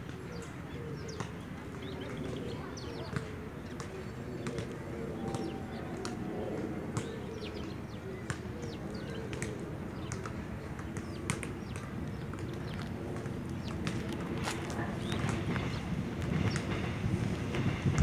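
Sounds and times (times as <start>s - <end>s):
small birds chirping: 6.9s - 17.9s.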